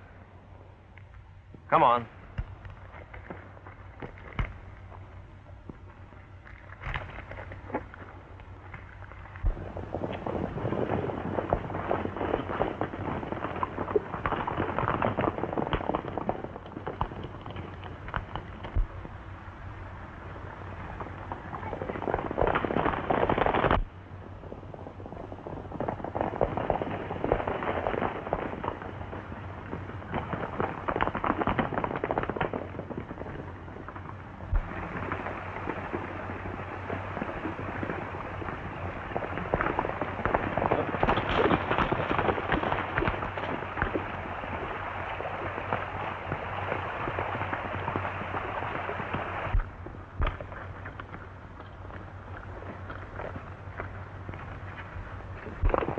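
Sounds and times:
sharp cracks: 0:00.9 - 0:05.0, 0:05.7 - 0:19.2, 0:25.7 - 0:55.9
horses galloping hoofbeats: 0:25.0 - 0:55.9.

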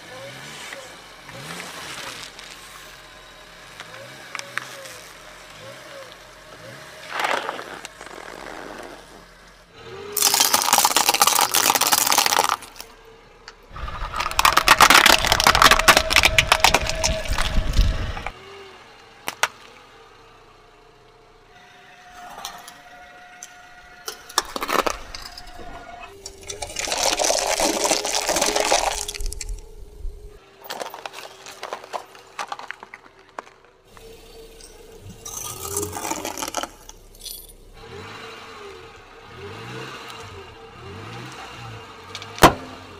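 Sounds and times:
objects cracking and crunching: 0:07.1 - 0:09.2, 0:10.2 - 0:13.0, 0:13.7 - 0:18.4, 0:24.0 - 0:34.0, 0:35.2 - 0:37.1
balloon bursting and splashing: 0:26.6 - 0:29.6.

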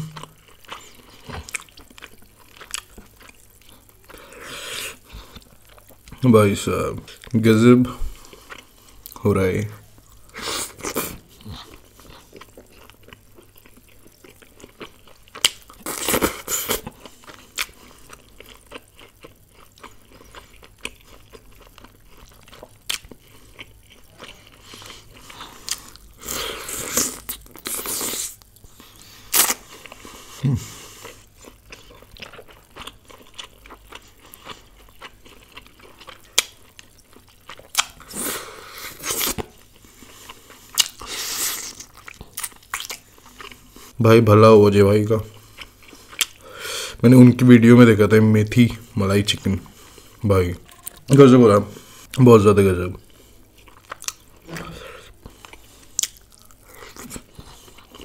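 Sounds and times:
close chewing food: 0:00.0 - 0:06.2, 0:08.0 - 0:09.2, 0:10.0 - 0:44.0, 0:45.0 - 0:47.9, 0:52.8 - 0:58.0.

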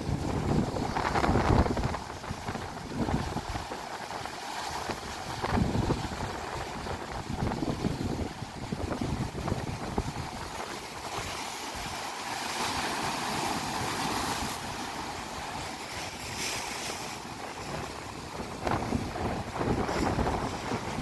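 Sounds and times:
wind buffeting microphone: 0:00.0 - 0:03.9, 0:04.7 - 0:12.0, 0:17.0 - 0:21.0
surf breaking on rocky shore: 0:00.0 - 0:21.0.

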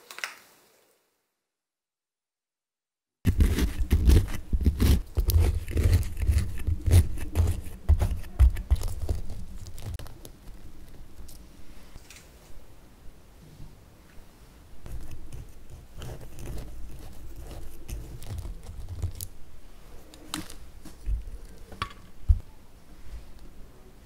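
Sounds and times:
muffin crackling and crunching: 0:03.3 - 0:12.1, 0:14.8 - 0:19.4.

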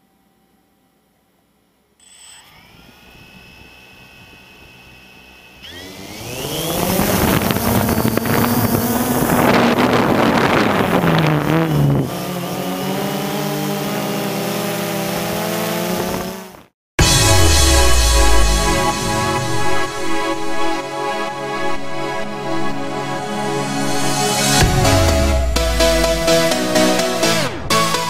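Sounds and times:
drone motors and propellers: 0:02.0 - 0:20.8.

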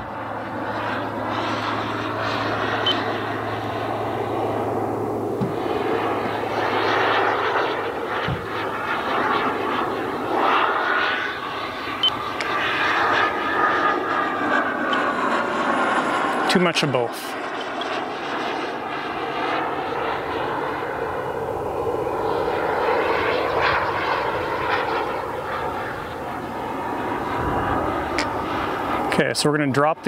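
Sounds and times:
high turbine whine: 0:00.0 - 0:30.0
jet engine roar: 0:00.0 - 0:30.0.

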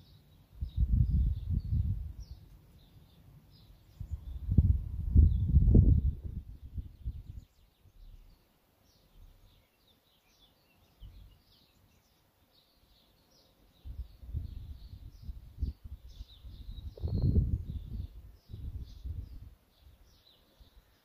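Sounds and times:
songbirds chirping: 0:00.0 - 0:21.0
wind rumbling on microphone: 0:00.6 - 0:02.4, 0:03.9 - 0:08.3, 0:13.8 - 0:20.8.

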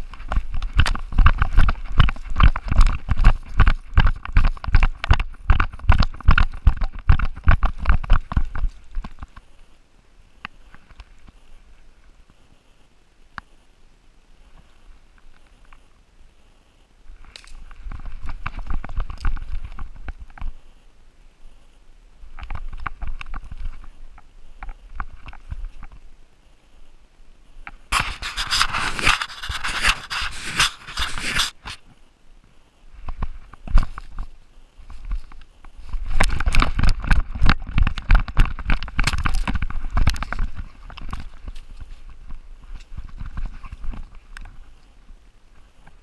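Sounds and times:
dog paws thudding while running: 0:00.0 - 0:09.4.

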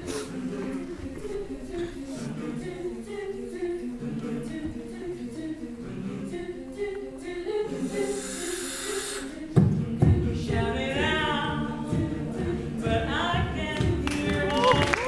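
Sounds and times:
choir singing held chords: 0:00.0 - 0:15.0
hiss: 0:07.8 - 0:09.4.

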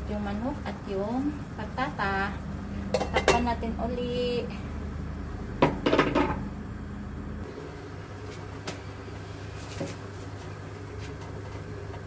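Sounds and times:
low hum: 0:00.0 - 0:08.3.

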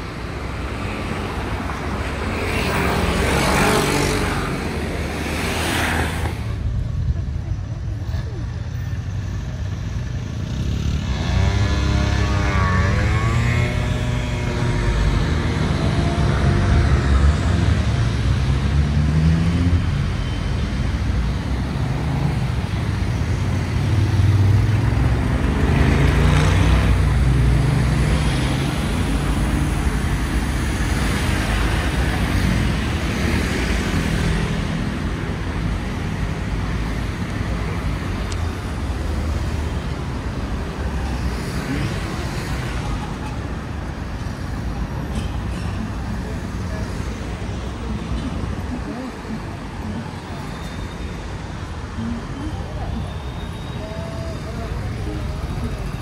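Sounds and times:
cars and motorbikes driving past: 0:00.0 - 0:56.0.

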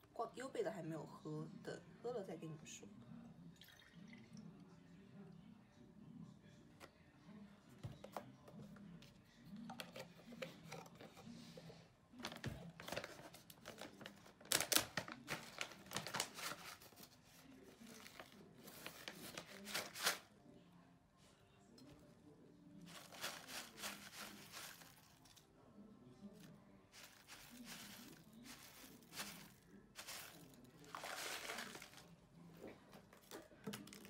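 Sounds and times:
plastic pouch crinkling: 0:12.2 - 0:17.0, 0:22.9 - 0:25.2, 0:27.0 - 0:32.1.

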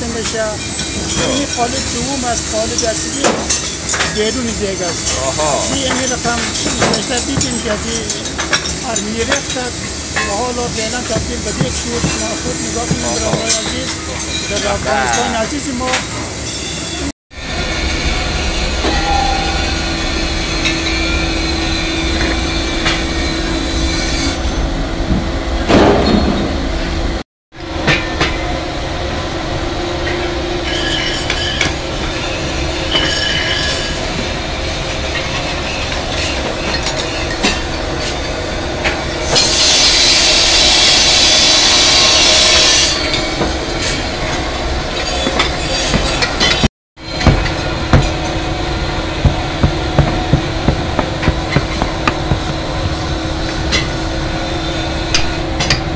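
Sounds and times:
loud hiss: 0:00.4 - 0:17.1, 0:39.4 - 0:43.0
steady rumbling noise: 0:47.0 - 0:55.9.

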